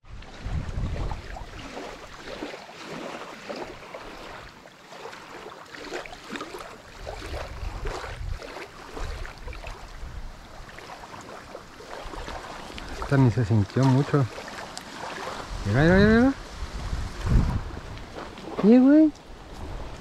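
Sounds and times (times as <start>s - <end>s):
wind buffeting microphone: 0.0s - 2.4s, 6.9s - 14.3s, 15.1s - 20.0s
waves lapping on gravel shore: 0.4s - 20.0s.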